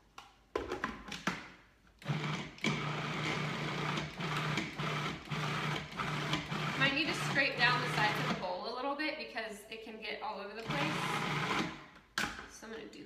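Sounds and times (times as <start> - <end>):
food processor motor running: 2.0 - 8.4, 10.6 - 11.8.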